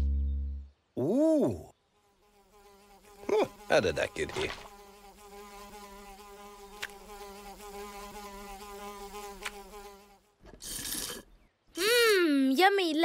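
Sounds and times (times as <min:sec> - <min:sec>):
cartoon wasp buzzing: 0:02.0 - 0:11.2.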